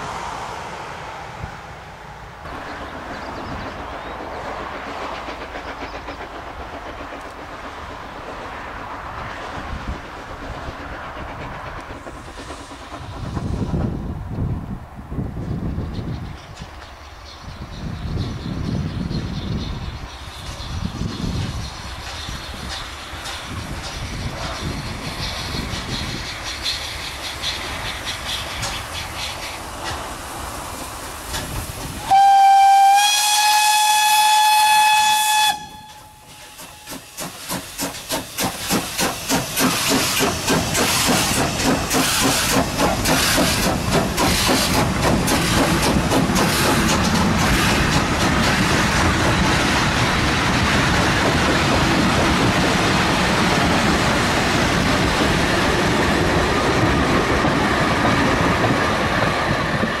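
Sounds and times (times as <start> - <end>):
train wheels on rails: 0.0 - 60.0
steam locomotive exhaust beats: 2.5 - 16.4, 17.8 - 60.0
steam locomotive whistle: 32.0 - 37.0.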